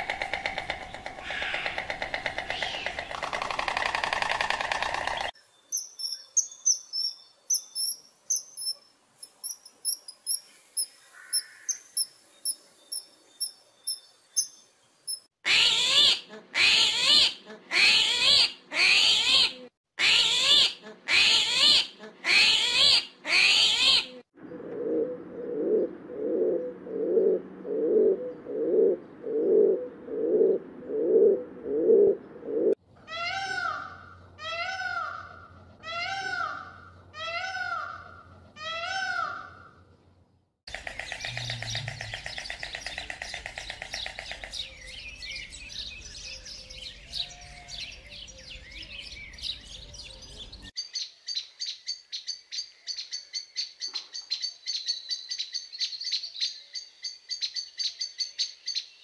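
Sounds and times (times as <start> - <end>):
peacock calling: 0.0 - 5.4, 9.5 - 12.1, 24.9 - 39.8, 40.7 - 50.7
loud harsh animal calls: 1.1 - 3.1
thin high chirps: 5.7 - 15.3
low pulsing animal call: 24.4 - 39.6, 40.8 - 44.0.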